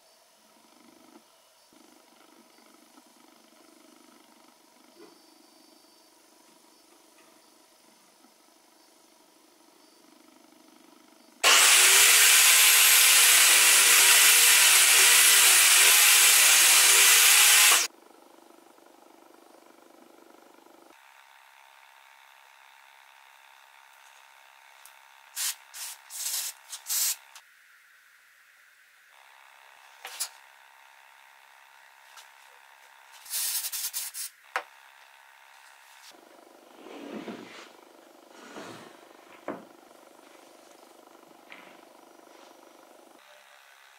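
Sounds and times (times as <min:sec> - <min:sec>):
table saw cutting wood: 0:11.4 - 0:17.9
sandpaper rubbing on wood: 0:25.4 - 0:27.2, 0:33.1 - 0:34.3
aerosol spray can hissing: 0:25.4 - 0:27.4, 0:33.1 - 0:34.4.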